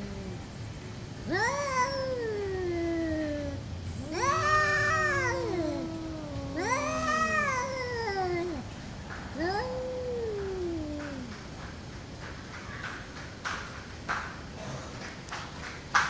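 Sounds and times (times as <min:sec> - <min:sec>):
cats yowling: 0:00.0 - 0:00.6, 0:01.2 - 0:11.6.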